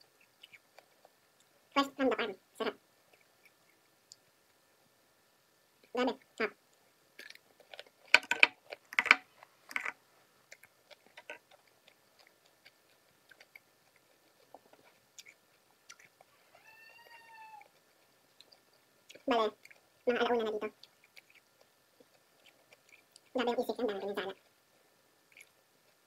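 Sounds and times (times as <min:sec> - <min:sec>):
chewing clicks: 0:00.2 - 0:01.6, 0:06.7 - 0:16.3, 0:17.0 - 0:19.9, 0:20.6 - 0:23.3, 0:25.2 - 0:26.0
cucumber crunching: 0:07.2 - 0:16.3
faint high-pitched call: 0:16.3 - 0:17.7.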